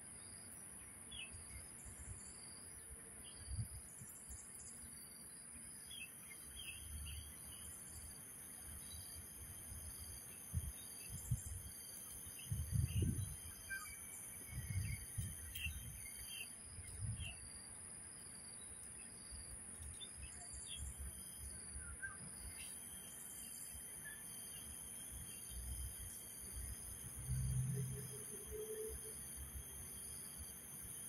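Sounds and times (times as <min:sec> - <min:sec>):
high insect drone: 0:00.1 - 0:31.0
bird chirps: 0:12.4 - 0:17.4.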